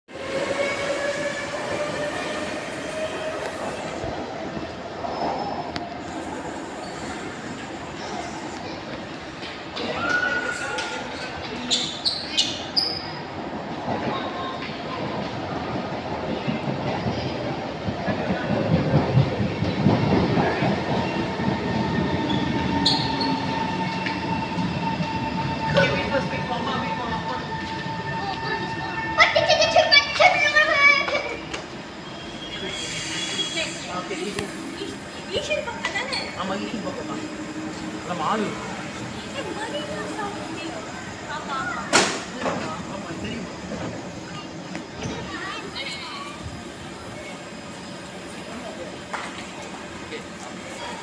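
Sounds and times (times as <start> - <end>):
wheel and rail rumble: 12.5 - 51.0
train traction whine: 18.3 - 50.8.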